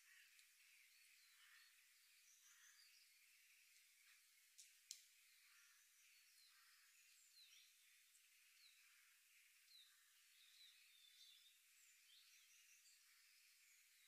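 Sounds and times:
faint bird chirps: 0:00.0 - 0:14.0.

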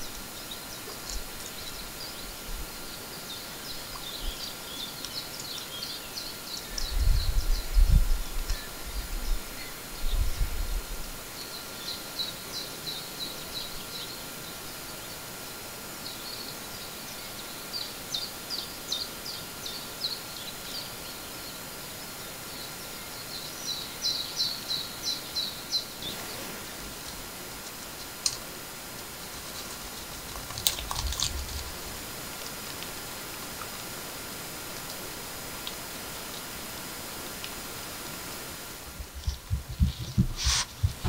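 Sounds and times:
bird chirping: 0:00.0 - 0:10.4
steady background hiss: 0:00.0 - 0:41.0.

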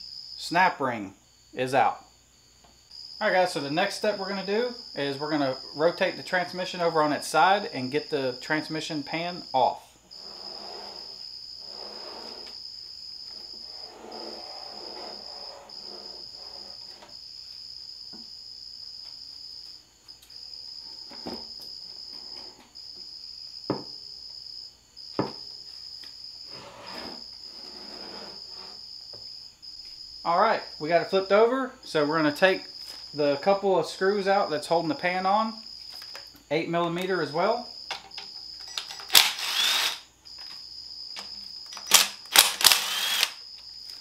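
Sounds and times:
cricket trilling: 0:00.0 - 0:44.0.

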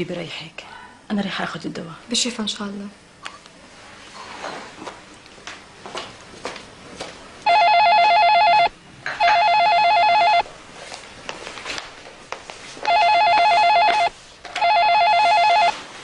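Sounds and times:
telephone warbling ring: 0:07.5 - 0:10.4, 0:12.9 - 0:15.8.

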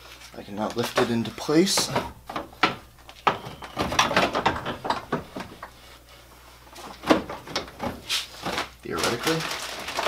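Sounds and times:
radiator knocking and scraping: 0:00.6 - 0:05.9.

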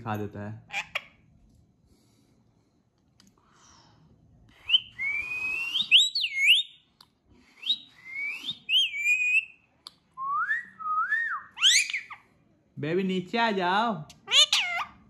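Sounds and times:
parakeet whistled calls: 0:05.6 - 0:06.8, 0:08.5 - 0:09.6, 0:11.4 - 0:12.2.

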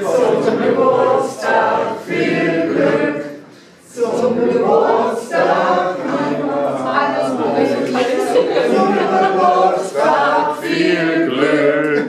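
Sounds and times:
group singing unaccompanied: 0:00.0 - 0:12.0.

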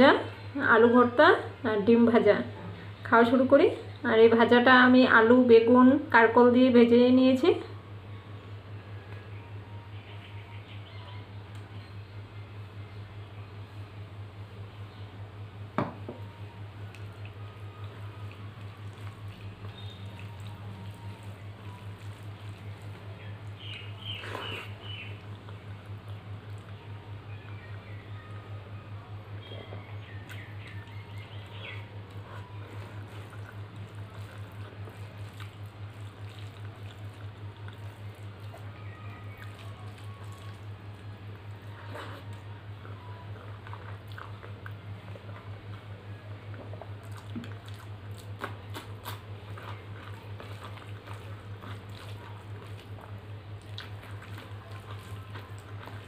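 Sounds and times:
steady low hum: 0:00.0 - 0:56.0
wet squishing of food mixed by hand: 0:16.8 - 0:28.1, 0:29.4 - 0:56.0
chewing and lip smacks: 0:30.2 - 0:41.0, 0:41.8 - 0:45.9, 0:46.5 - 0:56.0
food squished by hand: 0:30.3 - 0:38.7, 0:46.7 - 0:56.0.

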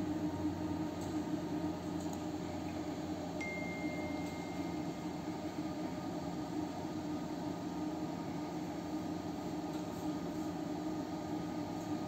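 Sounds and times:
power supply electrical hum: 0:00.0 - 0:12.0.

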